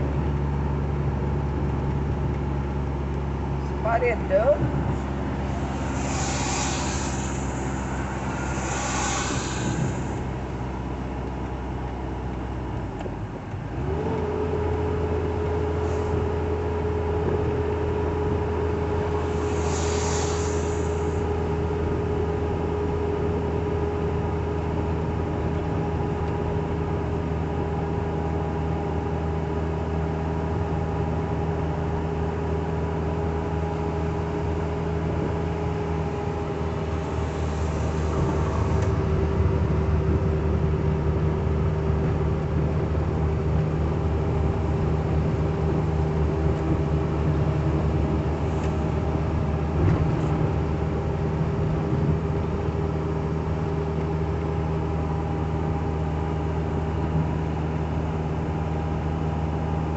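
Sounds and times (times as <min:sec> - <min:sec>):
engine and road noise drone: 0:00.0 - 0:59.9
hissing rushes: 0:04.8 - 0:11.1, 0:19.2 - 0:21.3, 0:36.6 - 0:39.1.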